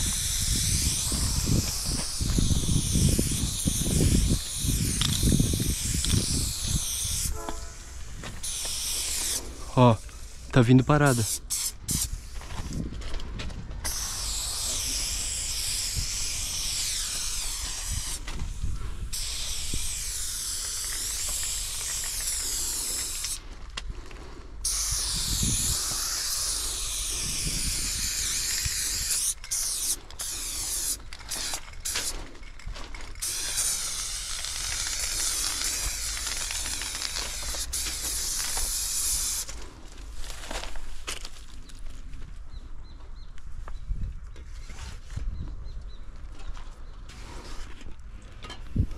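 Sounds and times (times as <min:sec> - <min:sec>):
spray paint can hissing: 0:00.0 - 0:12.9, 0:13.8 - 0:23.4, 0:24.6 - 0:39.6.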